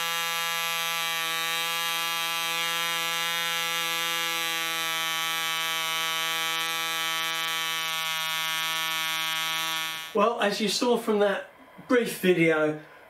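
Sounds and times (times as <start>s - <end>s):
model engine high-pitched buzz: 0.0s - 10.2s.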